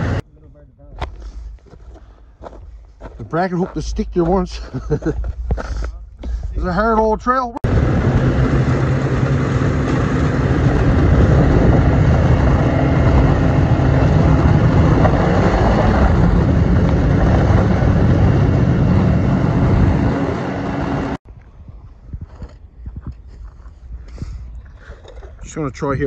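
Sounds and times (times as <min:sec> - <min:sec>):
snowmobile engine drone: 0:00.0 - 0:00.2, 0:03.5 - 0:21.2
snowmobile track noise: 0:00.0 - 0:00.2, 0:03.2 - 0:21.2.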